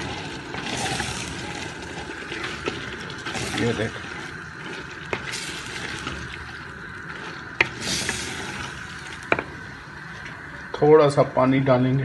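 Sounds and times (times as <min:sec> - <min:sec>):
spoon scraping in clay pot: 0:00.0 - 0:09.4.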